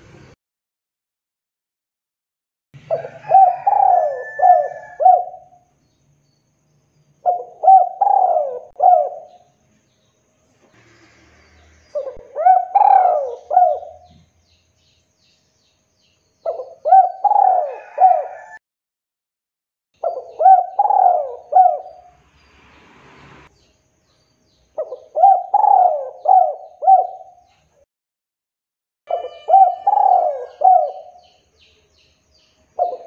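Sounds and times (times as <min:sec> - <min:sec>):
dove cooing: 0:02.9 - 0:05.6, 0:07.2 - 0:09.5, 0:11.9 - 0:14.3, 0:16.4 - 0:18.6, 0:20.0 - 0:22.2, 0:24.8 - 0:27.5, 0:29.1 - 0:31.3, 0:32.8 - 0:33.0.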